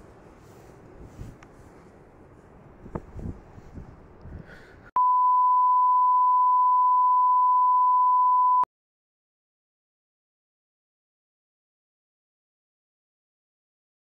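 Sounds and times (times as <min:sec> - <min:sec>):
steady electronic beep tone: 0:05.0 - 0:08.7.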